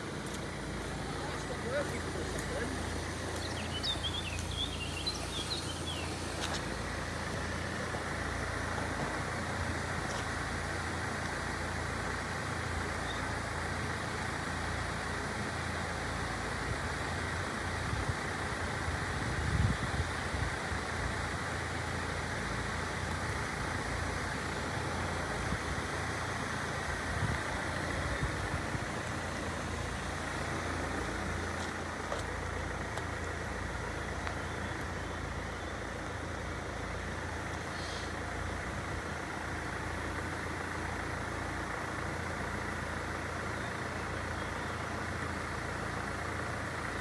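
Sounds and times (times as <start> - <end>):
road traffic noise: 0.0 - 47.0
bird chirping: 3.2 - 6.9.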